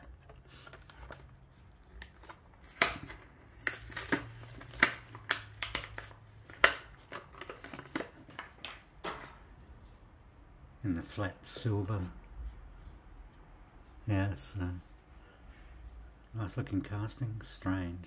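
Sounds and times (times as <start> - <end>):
plastic packaging crackling and tearing: 0.0 - 9.3.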